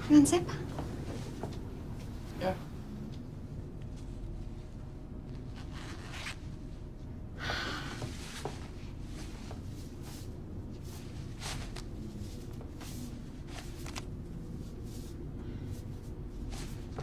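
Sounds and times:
elevator hum: 0.0 - 5.6
rustling: 3.8 - 6.7, 8.1 - 17.0.

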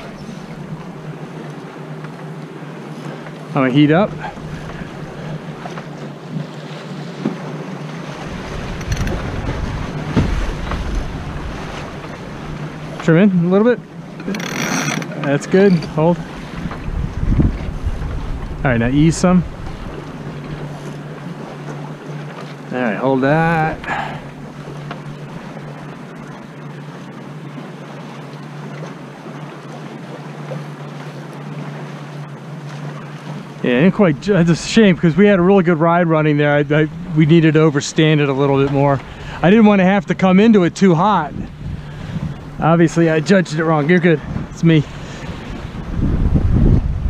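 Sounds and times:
wind and water rushing: 0.0 - 47.0
wind buffeting microphone: 8.0 - 13.2, 15.1 - 21.3, 36.4 - 47.0
wind hissing on microphone: 16.5 - 19.8, 41.3 - 42.6, 44.2 - 47.0.

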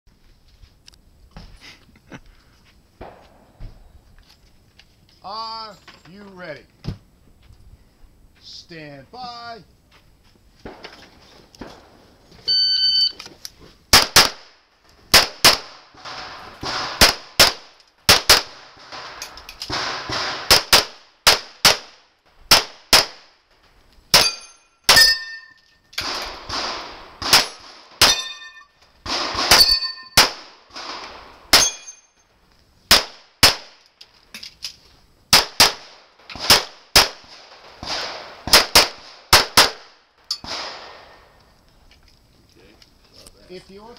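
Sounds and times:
shot timer beep: 12.5 - 13.2
pistol shots: 13.9 - 23.3, 24.1 - 28.4, 29.0 - 32.0, 32.9 - 33.8, 35.3 - 41.2
bullets ringing on steel targets: 24.1 - 26.0, 27.3 - 30.2, 31.5 - 32.2.

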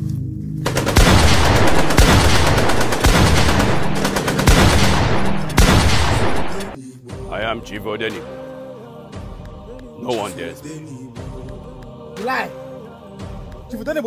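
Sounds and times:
rapid automatic gunfire: 0.7 - 6.8.

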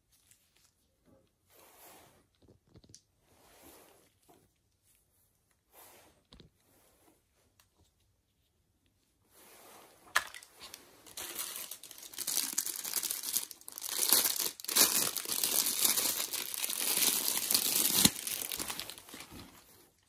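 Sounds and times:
plastic packaging crinkling: 10.2 - 20.0.

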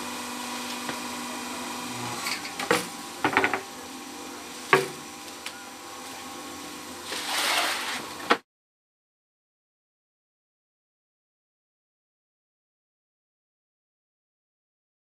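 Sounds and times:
brick press humming: 0.0 - 8.4.

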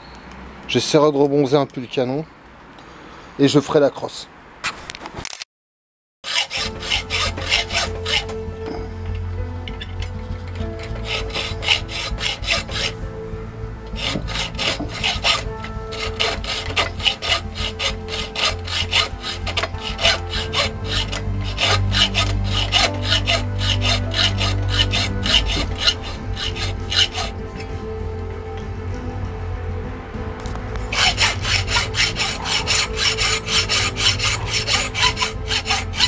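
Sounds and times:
hacksaw cutting steel: 6.2 - 8.8, 9.8 - 13.0, 13.9 - 27.4, 30.9 - 36.0.

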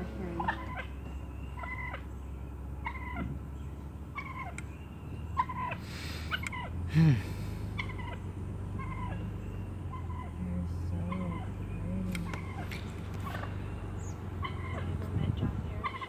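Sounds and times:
steady low hum: 0.0 - 16.0
turkey puffing hiss: 5.8 - 6.4.

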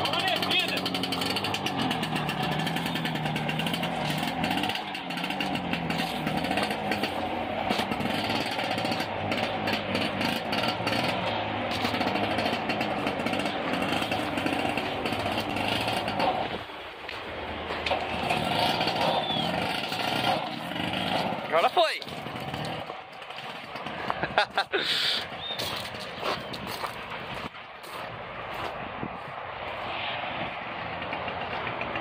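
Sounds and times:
scooter engine buzzing: 0.0 - 27.4, 30.8 - 32.0.

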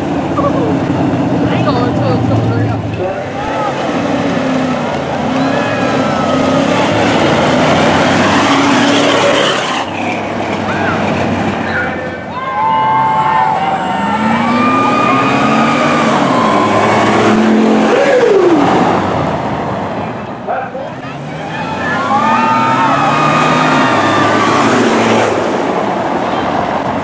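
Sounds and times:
truck engines revving and accelerating: 0.0 - 27.0.

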